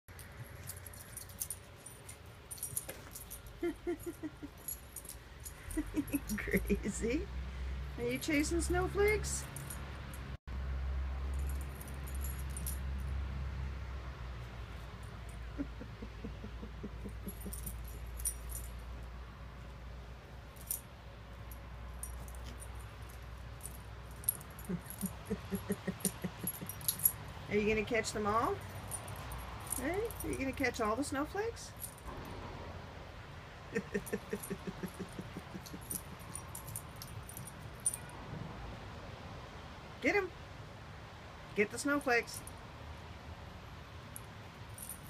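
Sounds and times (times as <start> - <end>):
dog collar tags jingling: 0.1 - 10.4, 11.2 - 13.4, 14.4 - 19.7, 20.3 - 32.1, 33.7 - 38.2, 44.1 - 45.0.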